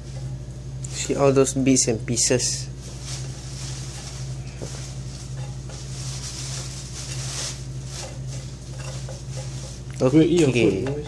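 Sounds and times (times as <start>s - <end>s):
steady low hum: 0.0s - 11.0s
eggs sizzling in frying pan: 2.6s - 11.0s
spatula scraping pan: 2.9s - 11.0s.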